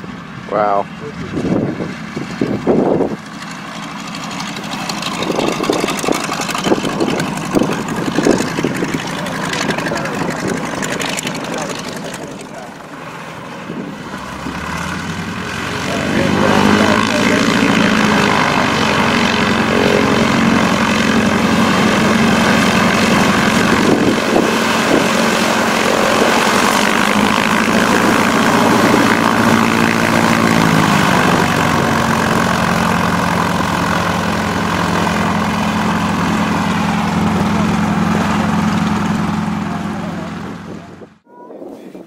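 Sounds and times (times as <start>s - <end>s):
propeller plane engine running: 0.0s - 41.3s.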